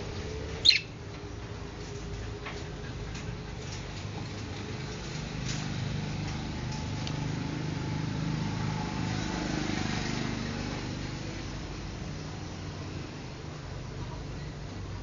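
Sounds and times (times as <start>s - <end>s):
faint budgerigar chirps: 0.6s - 0.9s.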